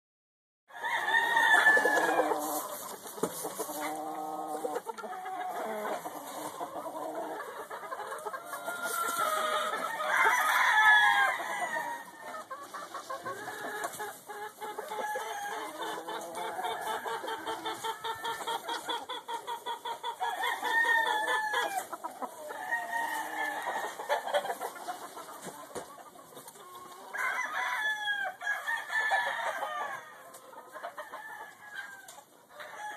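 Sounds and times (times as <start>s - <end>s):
rooster crowing: 0.7s - 2.4s, 20.3s - 21.9s, 27.1s - 30.0s
chicken clucking: 0.7s - 32.9s.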